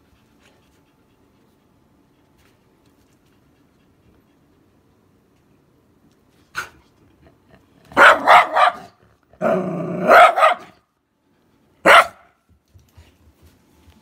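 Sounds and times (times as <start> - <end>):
dog barking: 7.9 - 9.0, 10.0 - 10.8, 11.8 - 12.4.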